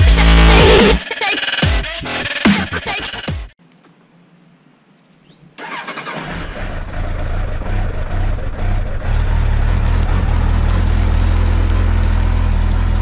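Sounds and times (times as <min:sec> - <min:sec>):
motorcycle engine cranking: 0:05.6 - 0:13.0
motorcycle engine running: 0:06.0 - 0:13.0.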